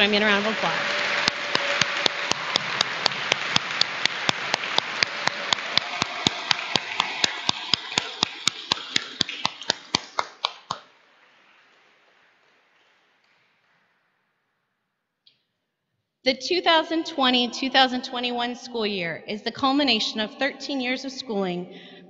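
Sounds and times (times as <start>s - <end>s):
crowd applause: 0.0s - 14.0s
loud hand claps near microphone: 0.0s - 14.5s.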